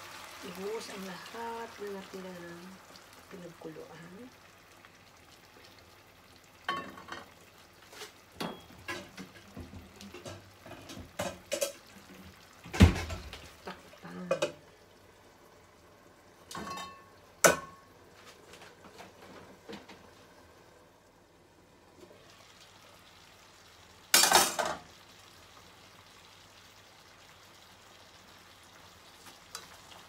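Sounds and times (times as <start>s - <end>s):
pots and pans knocking: 14.2s - 14.6s, 16.5s - 17.8s.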